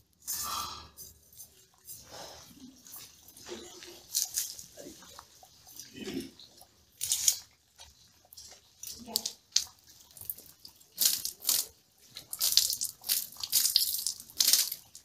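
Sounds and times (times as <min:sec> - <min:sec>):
water splashing on metal grate: 0:06.9 - 0:07.6, 0:08.3 - 0:15.0.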